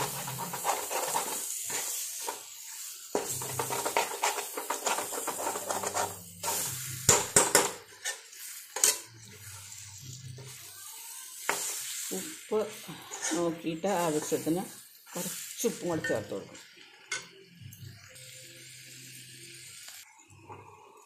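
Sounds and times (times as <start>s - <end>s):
metal spatula scraping a pan: 0.0s - 10.7s, 11.3s - 16.4s
food sizzling: 0.0s - 21.0s.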